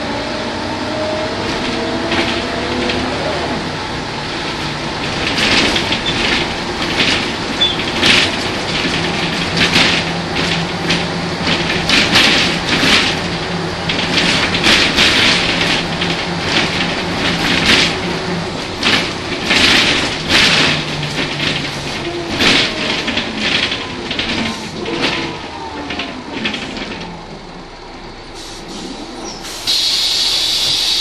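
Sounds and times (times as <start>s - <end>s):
diesel bus engine droning: 0.0s - 31.0s
rattles and knocks: 4.2s - 27.7s.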